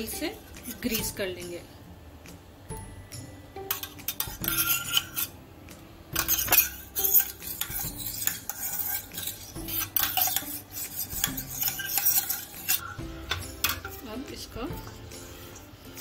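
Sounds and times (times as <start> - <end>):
spoon scraping inside metal barrel: 3.8 - 5.3, 6.2 - 13.0.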